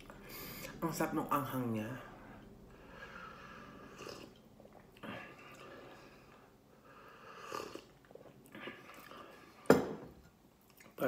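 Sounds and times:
person slurping from mug: 3.7 - 6.0, 7.3 - 9.6.

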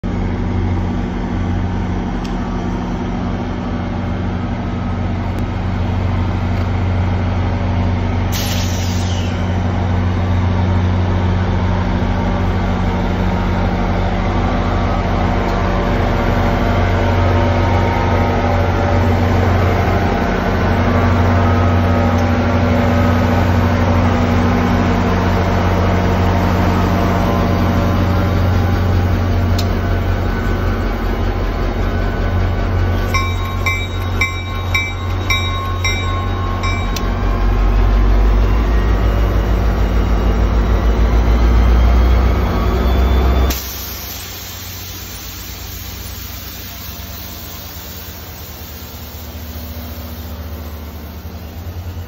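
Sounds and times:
diesel locomotive engine drone: 0.0 - 52.0
brief hiss: 8.4 - 9.5.

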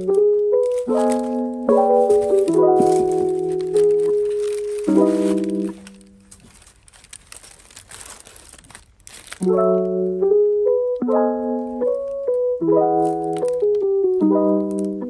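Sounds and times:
soft electric piano chords: 0.0 - 6.3, 9.4 - 15.0
tissue paper crinkling: 0.0 - 10.1, 11.8 - 15.0.

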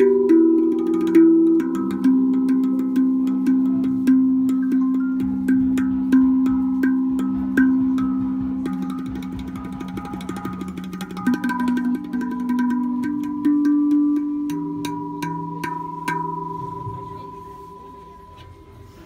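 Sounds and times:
steel tongue drum notes: 0.0 - 19.0.

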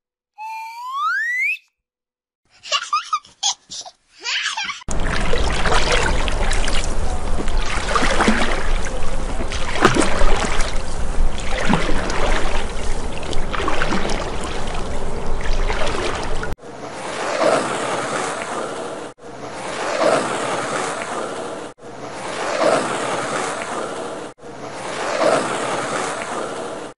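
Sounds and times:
bubbling gulps: 4.9 - 16.6
cartoon underwater rushing water: 4.9 - 26.9.

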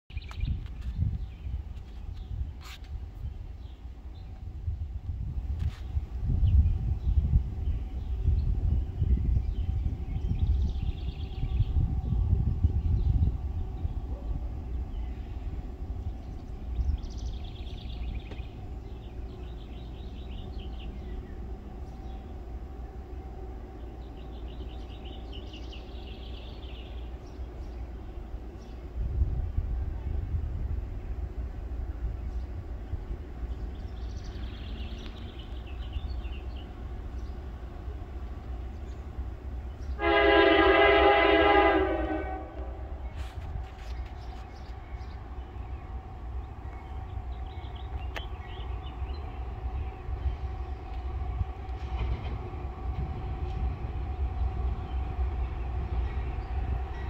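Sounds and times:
songbird singing: 0.1 - 4.6, 5.7 - 57.0
locomotive air horn: 40.0 - 42.9.

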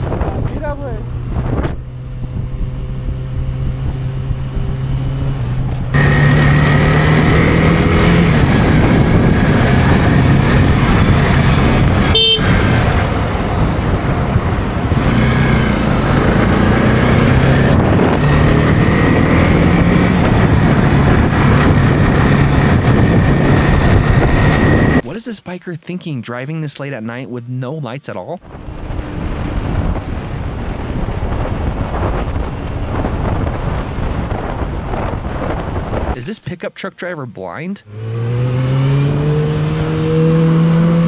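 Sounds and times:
motorcycle engine revving: 0.0 - 25.0, 37.8 - 41.0
wind rush: 0.0 - 25.2, 28.4 - 36.2
horn-like beep: 12.0 - 12.8.

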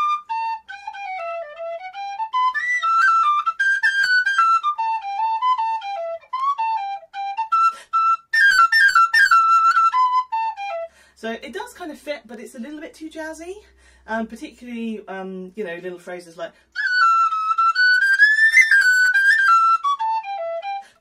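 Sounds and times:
tin whistle blues melody: 0.0 - 11.0, 16.8 - 21.0.

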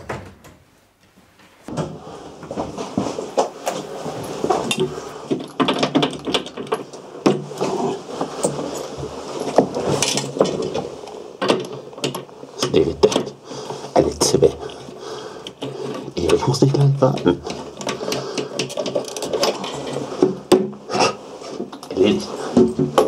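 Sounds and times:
toilet seat knocking and rattling: 20.2 - 20.9, 22.6 - 23.0.

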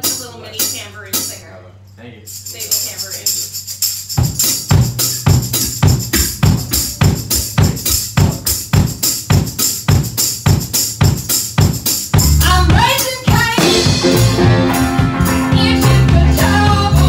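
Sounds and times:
drum kit beat: 0.0 - 1.4, 2.4 - 17.0
tambourine jingling: 0.0 - 17.0
bass notes: 4.0 - 17.0
band playing sustained chords: 13.6 - 17.0.

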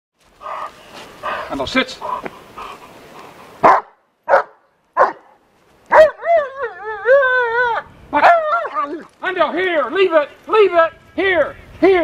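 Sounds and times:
dog barking: 3.6 - 6.2.

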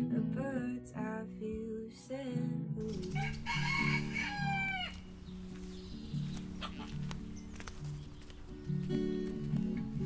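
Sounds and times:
acoustic guitar music: 0.0 - 10.0
rooster crowing: 3.0 - 5.2.

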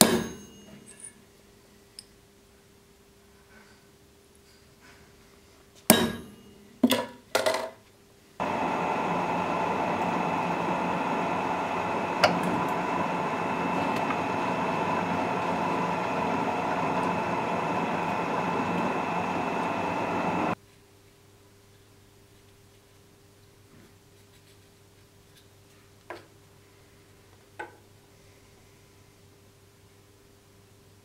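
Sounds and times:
hammer striking metal punch: 0.0 - 0.9, 5.9 - 6.5
drill press drilling metal: 8.4 - 20.6.

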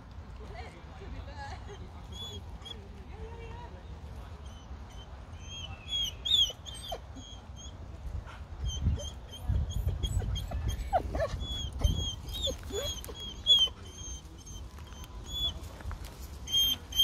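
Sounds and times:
puppies whimpering: 1.7 - 2.9, 4.3 - 7.9, 8.6 - 15.8, 16.4 - 17.0.

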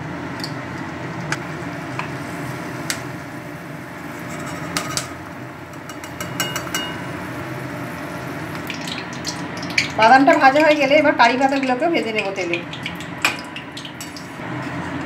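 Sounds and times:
nuts sizzling in hot oil: 1.4 - 12.0
metal skimmer clinking on pan: 4.3 - 7.3.

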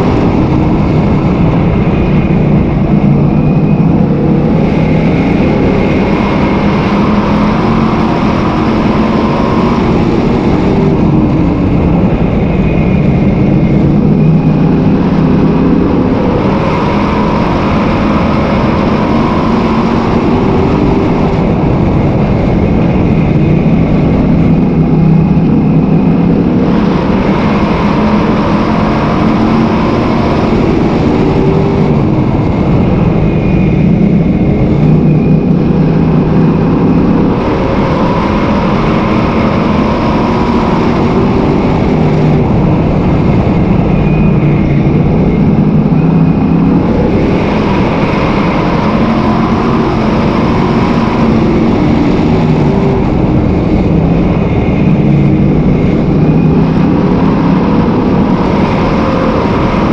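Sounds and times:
race car engine at speed: 0.0 - 59.9
wind and track noise: 0.0 - 59.9.

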